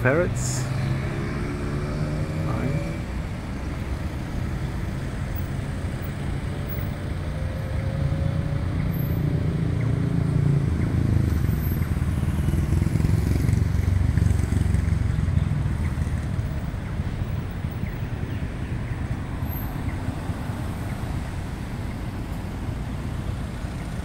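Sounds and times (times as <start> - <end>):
street traffic rumble: 0.0 - 24.0
motor vehicle passing: 0.4 - 3.4, 9.4 - 17.6.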